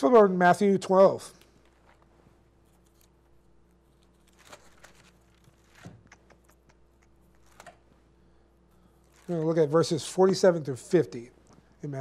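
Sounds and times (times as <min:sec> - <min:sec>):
low electrical hum: 0:00.0 - 0:12.0
book pages turning: 0:01.4 - 0:06.2, 0:07.3 - 0:07.9, 0:09.0 - 0:10.5.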